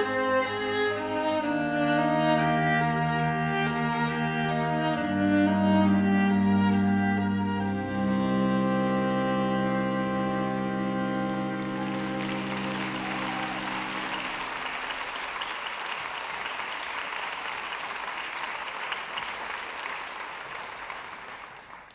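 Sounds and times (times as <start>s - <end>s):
held music chord: 0.0s - 15.2s
audience applauding: 11.1s - 21.9s.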